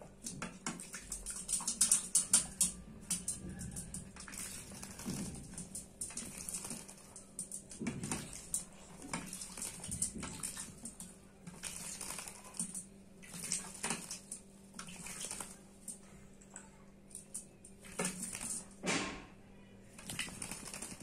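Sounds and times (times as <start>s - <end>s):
bird splashing water: 0.0s - 16.0s, 17.1s - 18.8s, 19.9s - 21.0s
taps and clicks against bowl: 0.2s - 9.3s.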